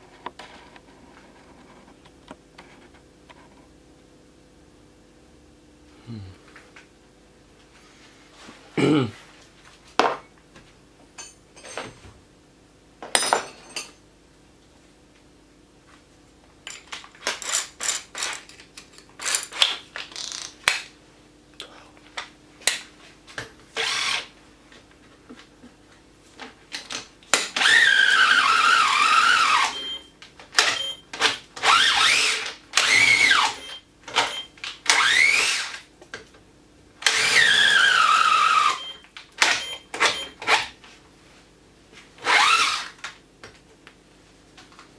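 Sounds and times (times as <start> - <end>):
cordless drill boring into timber: 23.8 - 24.3, 27.6 - 29.8, 31.6 - 33.6, 34.9 - 35.8, 37.0 - 38.8, 42.2 - 43.0.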